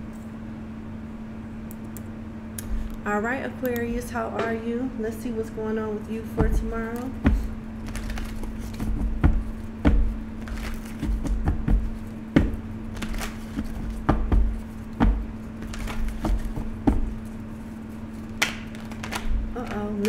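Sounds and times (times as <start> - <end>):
cards being shuffled: 6.4 - 20.0
cards being laid down: 7.4 - 11.6, 12.4 - 17.1, 18.2 - 19.9.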